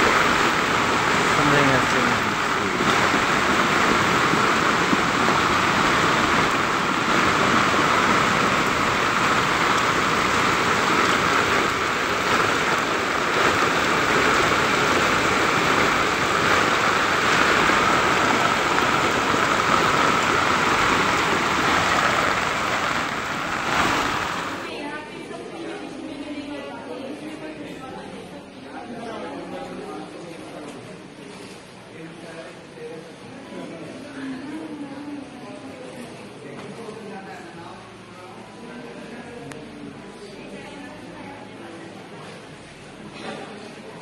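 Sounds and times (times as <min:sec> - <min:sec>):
flood torrent rushing: 0:00.0 - 0:24.7
heavy rain: 0:00.0 - 0:24.7.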